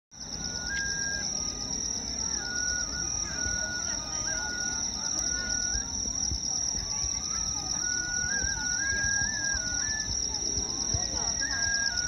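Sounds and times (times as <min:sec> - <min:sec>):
crowd murmur: 0:00.2 - 0:12.0
insects trilling: 0:00.2 - 0:12.0
flute playing slow tune: 0:00.3 - 0:05.9, 0:07.5 - 0:12.0.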